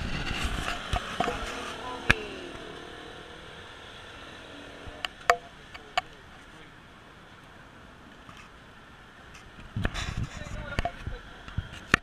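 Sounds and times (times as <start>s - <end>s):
vehicle passing: 0.0s - 9.2s.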